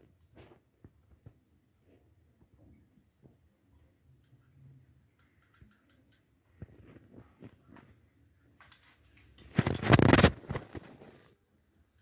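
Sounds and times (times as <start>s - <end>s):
rustling scraping handling noise: 8.7s - 11.3s.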